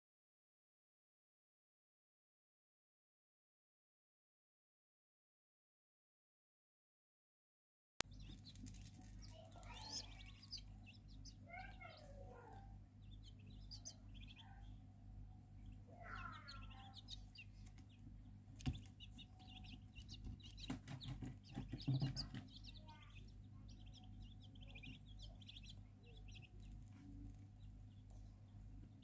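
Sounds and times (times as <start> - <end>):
chicks peeping: 8.0 - 29.0
steady low hum: 8.0 - 29.0
knocks and rustling: 19.9 - 22.7.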